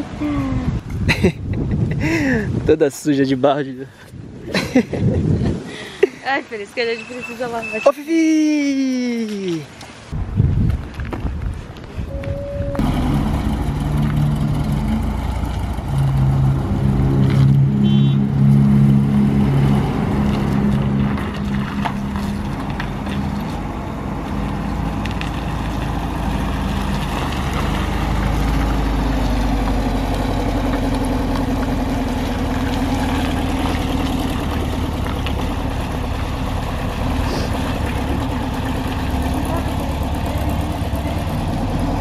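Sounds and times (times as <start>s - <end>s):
van engine driving past: 12.3s - 42.0s.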